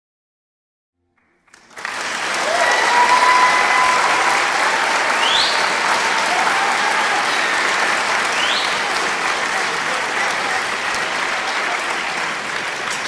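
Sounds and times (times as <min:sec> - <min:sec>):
audience applauding: 0:01.2 - 0:13.0.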